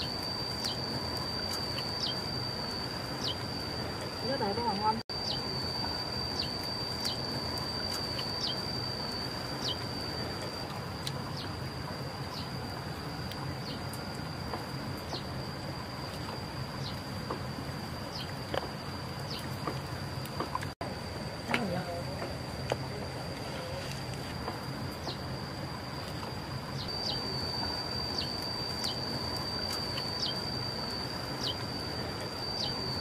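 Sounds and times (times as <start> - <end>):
high-pitched insect drone: 0.0 - 20.3, 20.9 - 33.0
bird chirping: 1.5 - 3.5, 4.2 - 5.5, 6.3 - 7.3, 8.0 - 9.9, 18.0 - 18.4, 19.2 - 19.6, 26.8 - 30.5, 31.3 - 31.7, 32.5 - 33.0.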